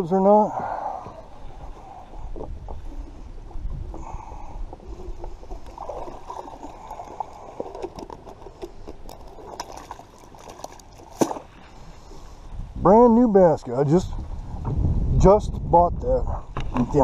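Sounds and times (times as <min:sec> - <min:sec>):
water splashing and gurgling: 0:00.7 - 0:12.4.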